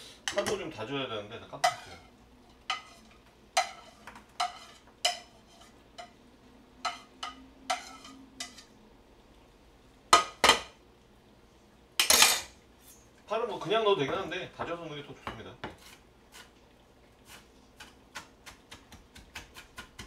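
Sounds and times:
dishes clacking: 0:01.6 - 0:06.2, 0:06.8 - 0:08.7, 0:10.1 - 0:10.8, 0:12.0 - 0:12.6
knife chopping on plastic board: 0:17.8 - 0:20.0.

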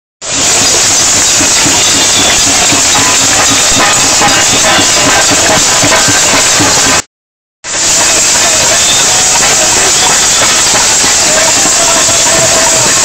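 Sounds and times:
crowd banging pots and pans: 0:00.2 - 0:07.1, 0:07.7 - 0:13.0
voices: 0:01.6 - 0:07.0.

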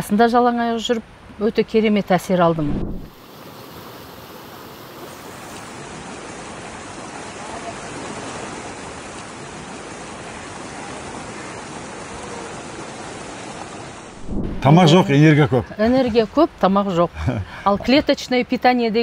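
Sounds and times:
stream rushing over rocks: 0:02.8 - 0:16.2.

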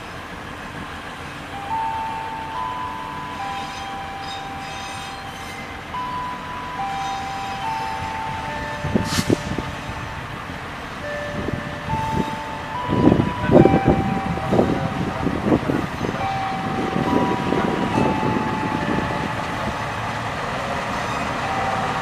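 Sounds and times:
train engine and wheels rumbling: 0:00.0 - 0:22.0
wheels clanking over rail joints: 0:00.0 - 0:22.0
wheels squealing on track: 0:03.3 - 0:10.0, 0:20.9 - 0:22.0.

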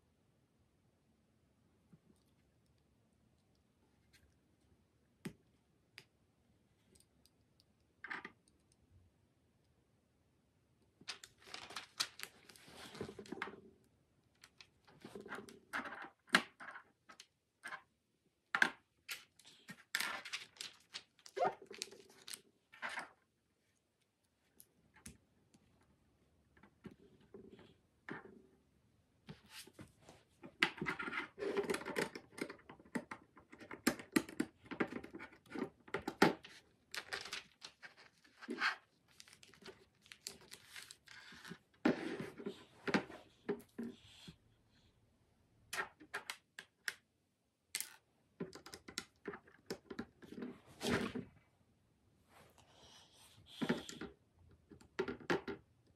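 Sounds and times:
paper pages rustling: 0:11.1 - 0:13.4, 0:36.9 - 0:42.6.

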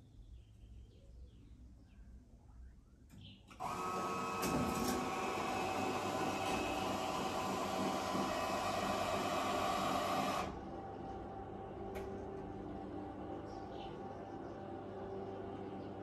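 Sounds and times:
electric motors whining: 0:03.5 - 0:11.7.

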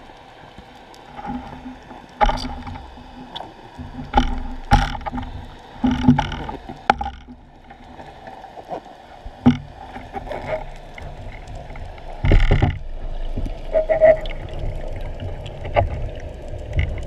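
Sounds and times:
underwater rush of water: 0:00.0 - 0:17.0
sharp knocks and clicks: 0:12.2 - 0:12.8.

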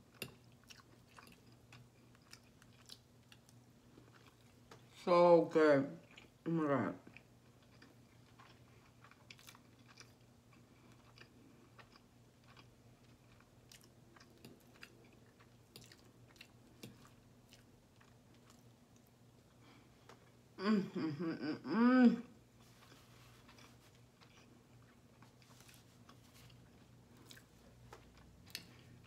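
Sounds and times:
faint chewing: 0:00.0 - 0:04.9, 0:07.0 - 0:20.4, 0:22.6 - 0:29.0
woman humming mmm: 0:20.6 - 0:22.4.

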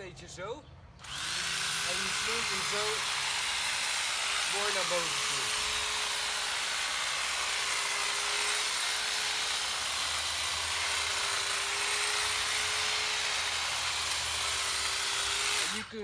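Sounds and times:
electric hedge trimmer running: 0:01.0 - 0:16.0.

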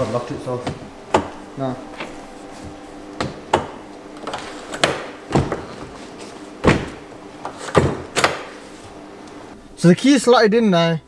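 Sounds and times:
car door clunks and knocks: 0:00.6 - 0:01.4, 0:02.0 - 0:06.0, 0:06.6 - 0:08.5.

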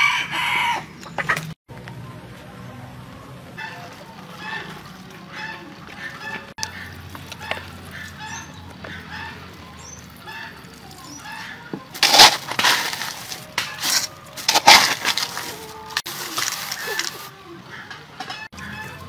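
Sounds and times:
chickens clucking: 0:00.0 - 0:01.6, 0:03.5 - 0:19.0
plastic bag crinkling: 0:12.0 - 0:17.3.

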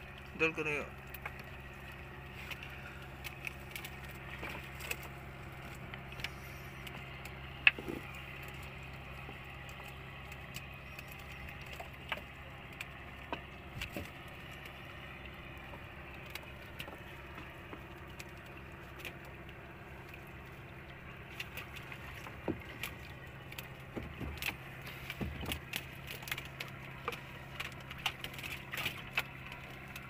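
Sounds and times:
small boat engine idling: 0:00.0 - 0:30.0
fish trap clicks and rattles: 0:25.3 - 0:30.0.

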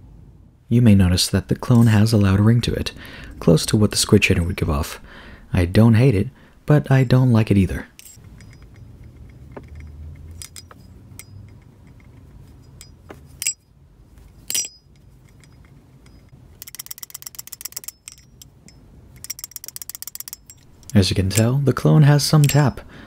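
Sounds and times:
butterfly knife rattling: 0:07.9 - 0:21.6, 0:22.2 - 0:22.9.

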